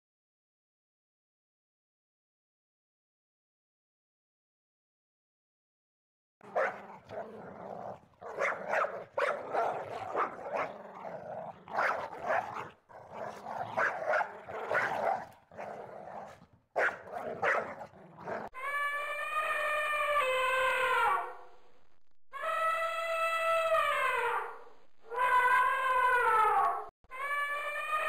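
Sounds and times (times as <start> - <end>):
dog barking and growling: 6.4 - 18.7
elephant trumpeting: 16.8 - 18.6.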